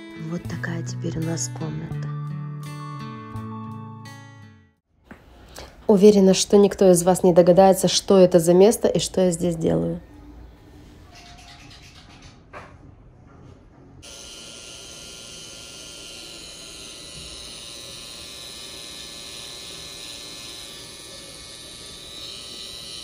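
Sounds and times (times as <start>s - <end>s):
electric tattoo machine buzzing: 14.0s - 23.0s.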